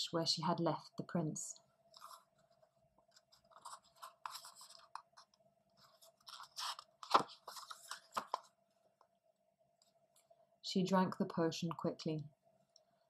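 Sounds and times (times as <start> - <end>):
paper page rustling: 1.9 - 8.5.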